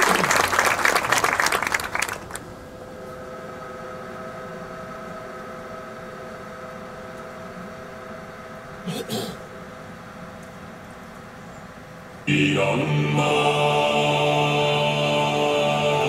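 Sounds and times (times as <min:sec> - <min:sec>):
audience applause: 0:00.0 - 0:02.4
steady hum with held tones: 0:00.0 - 0:16.0.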